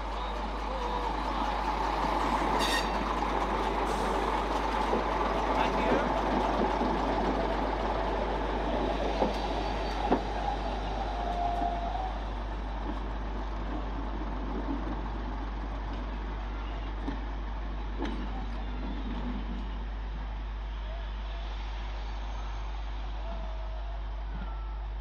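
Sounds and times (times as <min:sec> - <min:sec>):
wheels on rails: 0:00.0 - 0:23.5
diesel railcar engine running: 0:00.0 - 0:25.0.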